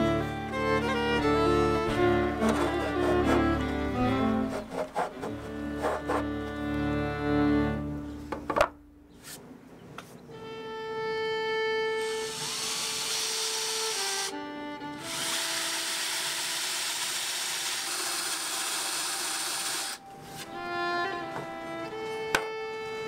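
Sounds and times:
violin-led background music: 0.0s - 8.3s, 10.3s - 16.9s, 19.0s - 23.0s
power drill boring through wood: 12.0s - 14.3s, 15.0s - 20.0s.

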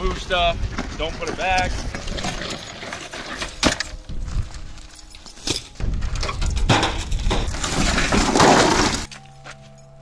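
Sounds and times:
metal junk clattering: 1.5s - 9.4s
footsteps on dry ground: 3.9s - 6.2s, 7.2s - 10.0s.

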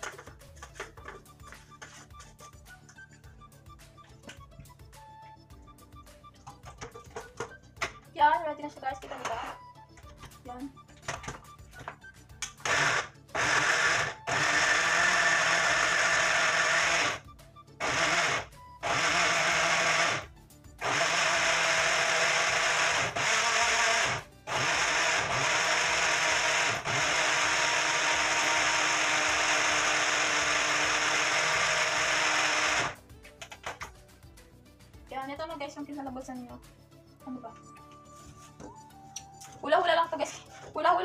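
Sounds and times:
blender motor whirring: 12.4s - 33.0s.

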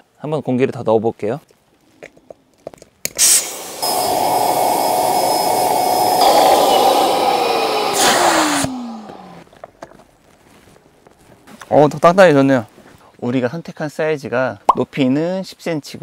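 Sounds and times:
electric air pump whining: 3.2s - 9.4s
motor winding down: 3.4s - 9.4s.

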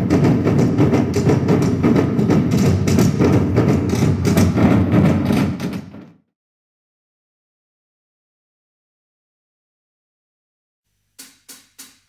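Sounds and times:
music with percussive beat: 0.0s - 6.1s.

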